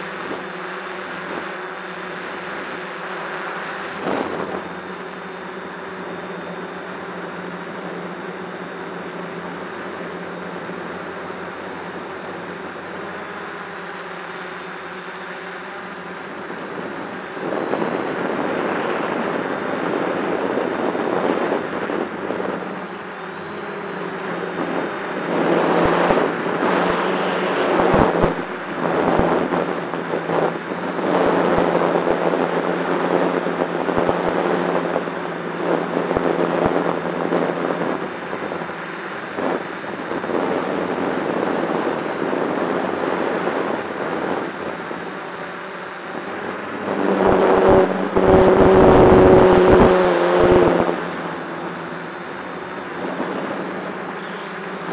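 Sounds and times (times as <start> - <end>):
drone motors and propellers humming: 0.0 - 54.9
wind buffeting microphone: 15.9 - 54.9.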